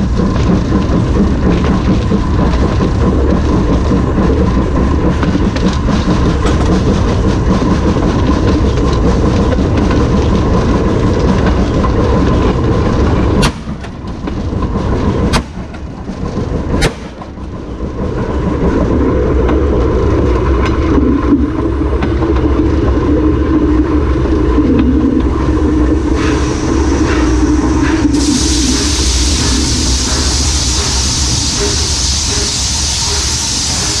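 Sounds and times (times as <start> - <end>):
locomotive wheels rolling on rail: 0.0 - 34.0
loud steady hiss: 26.0 - 34.0.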